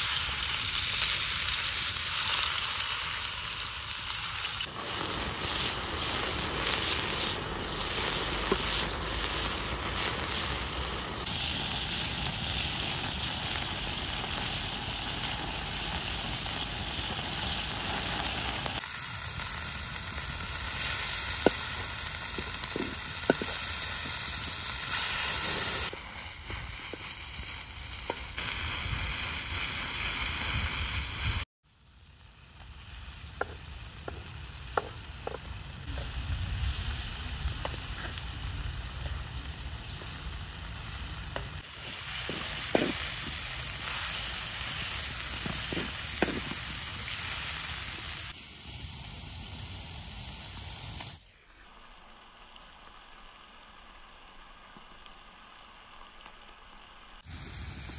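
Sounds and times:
chicken sizzling in a wok: 0:00.0 - 0:57.9.

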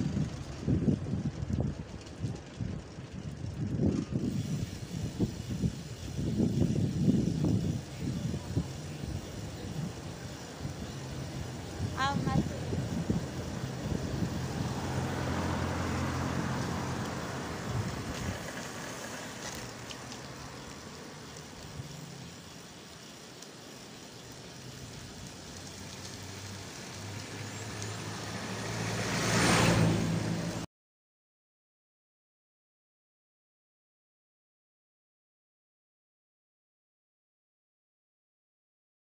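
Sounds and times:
vehicle engine humming: 0:00.0 - 0:30.7
pickup truck passing: 0:04.5 - 0:30.7.

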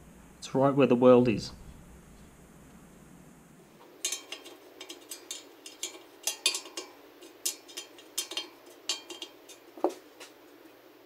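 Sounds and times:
spoke wrench clicking on metal: 0:04.0 - 0:09.6.

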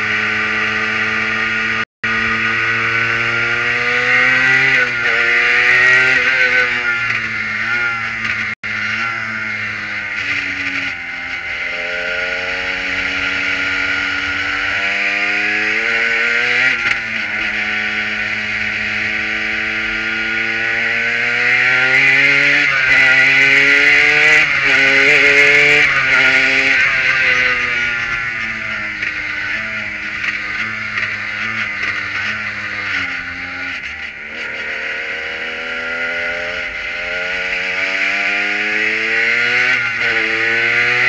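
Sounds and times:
race car engine revving: 0:00.0 - 0:41.0
wind and road noise: 0:00.0 - 0:41.0.

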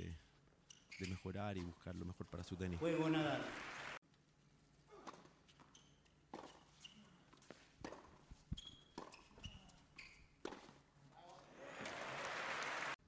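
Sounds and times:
shoe squeaks: 0:00.6 - 0:01.3, 0:05.4 - 0:10.7
tennis ball bouncing: 0:07.4 - 0:09.6, 0:10.4 - 0:10.8.

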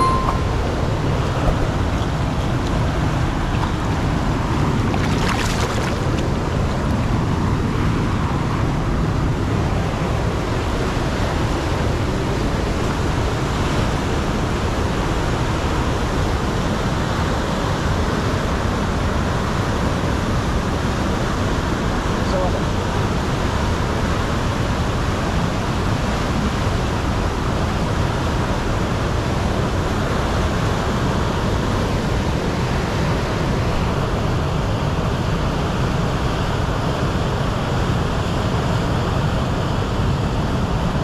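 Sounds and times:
river water rushing: 0:00.0 - 0:17.5
fish splashing at surface: 0:04.8 - 0:06.4.

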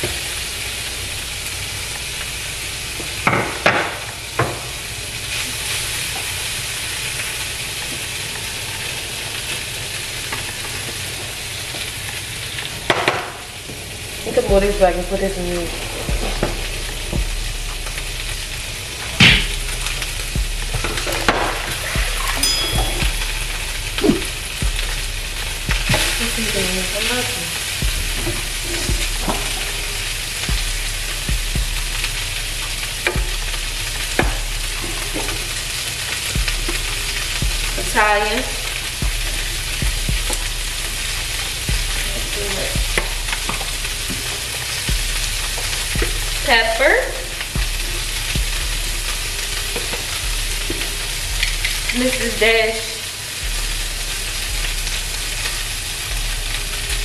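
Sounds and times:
food sizzling in frying pan: 0:00.0 - 0:57.0.

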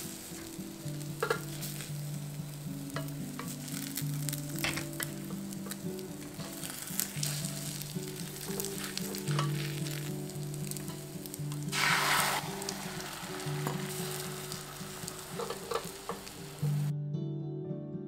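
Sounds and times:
egg sizzling in a pan: 0:00.0 - 0:16.9
soft background music: 0:00.0 - 0:18.0
chopsticks clicking against pan: 0:02.9 - 0:10.0, 0:15.3 - 0:16.6.

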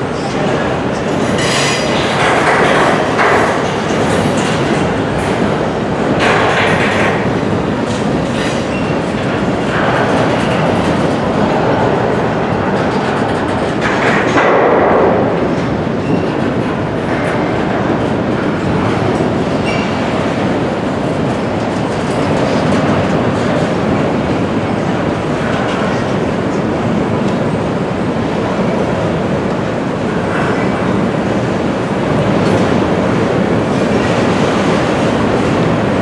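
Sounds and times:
freight train wheels rumbling on rail: 0:00.0 - 0:36.0.

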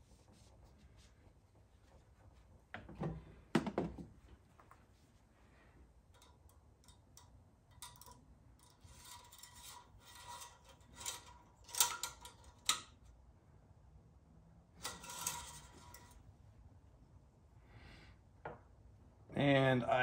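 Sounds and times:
dipstick rubbing and scraping: 0:07.8 - 0:12.9, 0:14.8 - 0:16.2.

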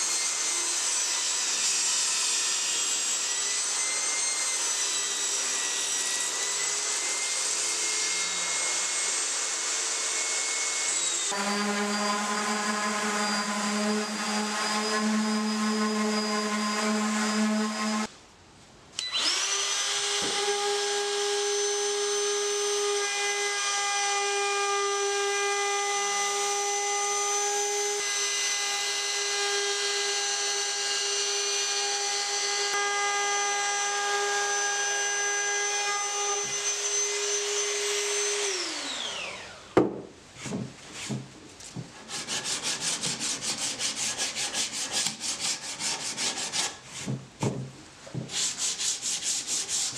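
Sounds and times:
router running high pitch: 0:35.6 - 0:39.7
sharp knocks: 0:39.8 - 0:42.0.

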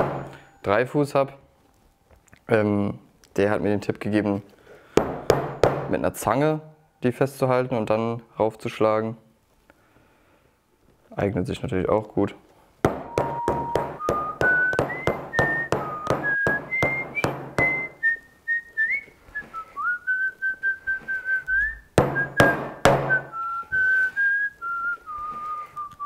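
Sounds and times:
hammer striking nails on iron: 0:00.0 - 0:00.4, 0:05.0 - 0:06.0, 0:12.8 - 0:18.0, 0:22.0 - 0:23.3
person whistling a tune: 0:13.0 - 0:26.0.

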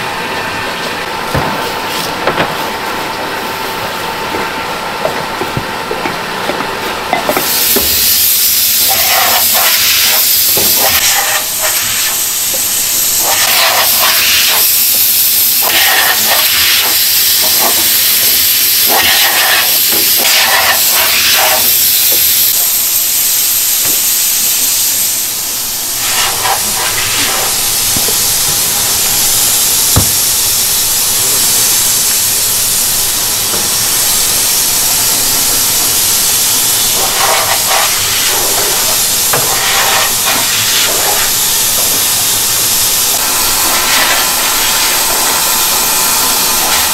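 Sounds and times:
rushing air hiss: 0:07.2 - 0:46.9.

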